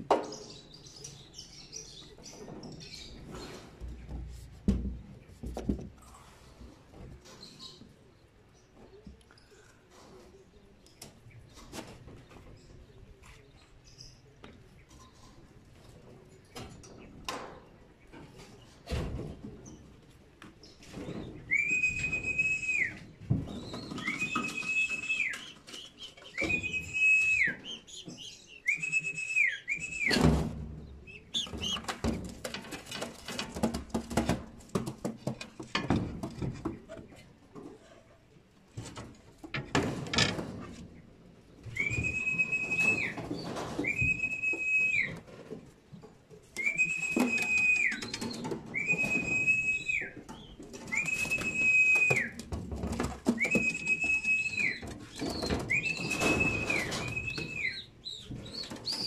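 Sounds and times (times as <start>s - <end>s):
long level whistles: 21.5s - 23.0s, 24.0s - 25.5s, 26.4s - 27.8s, 28.6s - 30.2s, 41.7s - 43.2s, 43.8s - 45.2s, 46.6s - 48.2s, 48.8s - 50.2s, 50.9s - 52.4s, 53.4s - 54.8s, 55.6s - 57.9s
knocks and rattles: 29.8s - 37.8s, 38.7s - 41.1s.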